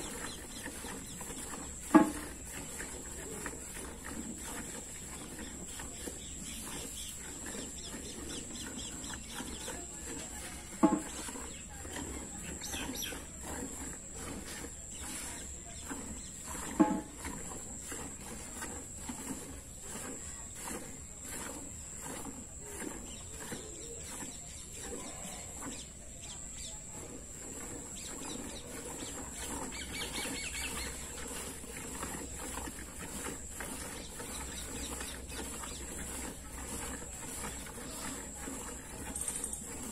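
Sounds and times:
milk squirting into steel bucket: 0.0 - 5.6.

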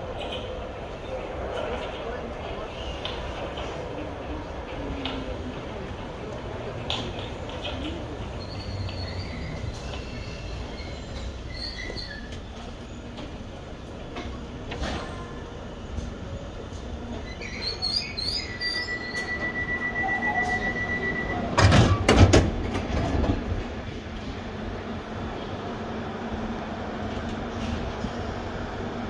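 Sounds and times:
high door warning beeps: 18.5 - 21.6
sliding doors shutting with knocks: 21.5 - 23.6.

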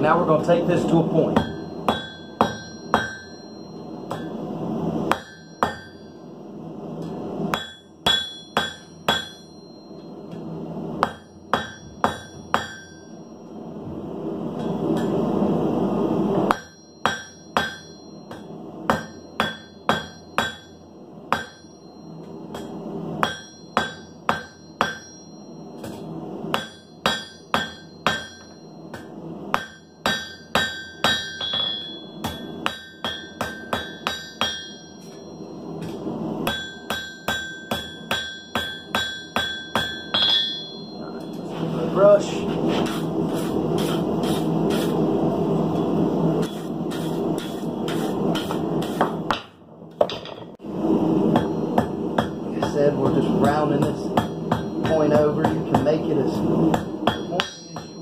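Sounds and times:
hammer ringing on anvil: 1.3 - 4.4, 5.1 - 6.3, 7.0 - 13.6, 16.5 - 41.5, 51.3 - 56.1, 56.7 - 58.0
rushing noise: 50.6 - 57.2.

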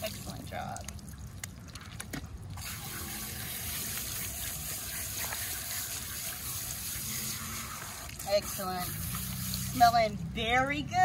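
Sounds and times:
hose nozzle spraying water: 2.6 - 10.0.

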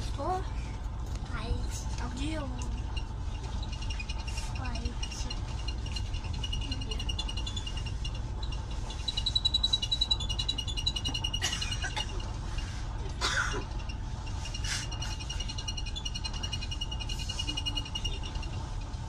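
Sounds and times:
train carriage rumble: 0.0 - 19.0
high-pitched pulsing chirp: 2.6 - 12.2.

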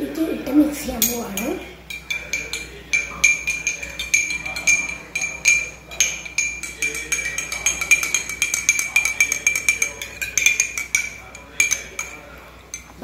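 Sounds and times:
spoon clinking against glass: 1.0 - 13.0.

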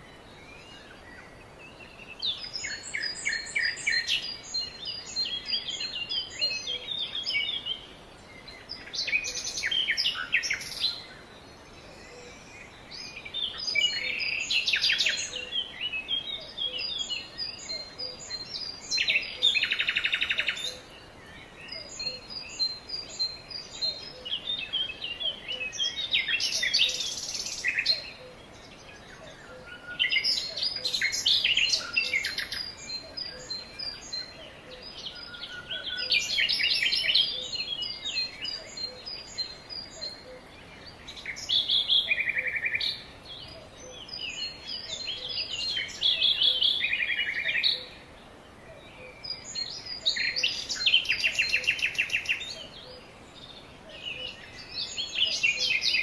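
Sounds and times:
songbird song with trill: 0.0 - 56.0.

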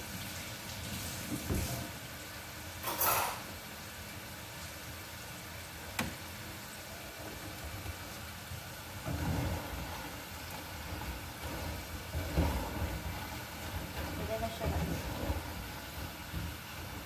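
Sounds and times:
gas stove click: 5.9 - 6.2.

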